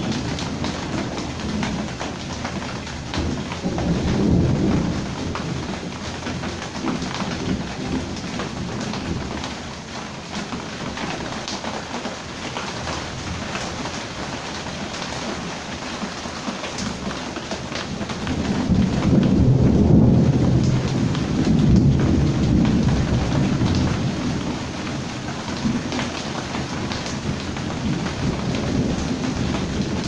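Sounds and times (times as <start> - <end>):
close raindrop ticks: 0.0 - 30.0
heavy rain falling: 0.0 - 30.0
low thunder rolling: 3.0 - 9.4, 17.9 - 25.9, 26.6 - 30.0.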